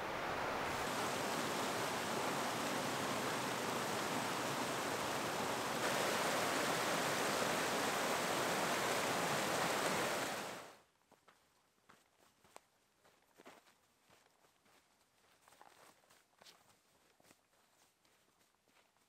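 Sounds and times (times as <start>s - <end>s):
creek rushing over rocks: 0.0s - 10.8s.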